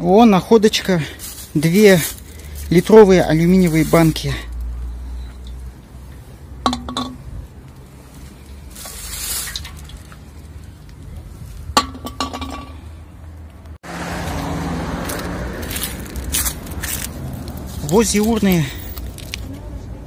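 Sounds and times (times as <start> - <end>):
outdoor background noise: 0.0 - 20.0
rustle: 1.0 - 12.9, 14.2 - 19.6
drink cans clinking: 6.6 - 7.2, 11.8 - 12.8.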